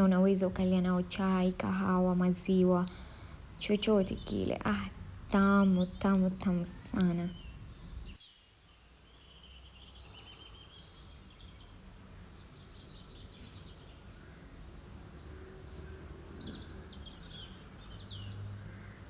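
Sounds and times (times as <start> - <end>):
low steady hum: 0.0 - 18.7
small birds chirping: 0.0 - 19.0.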